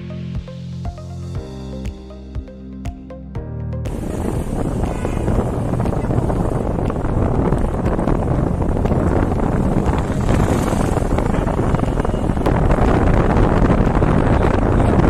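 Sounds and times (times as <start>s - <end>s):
road and engine rumble: 3.8s - 15.0s
wind buffeting microphone: 3.9s - 15.0s.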